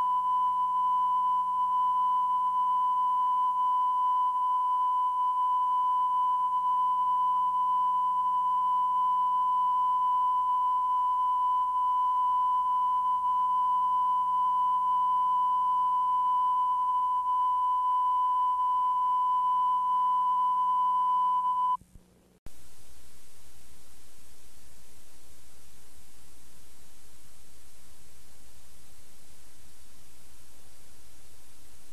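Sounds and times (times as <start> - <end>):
steady test tone: 0.0 - 21.8
faint low hum: 0.0 - 31.9.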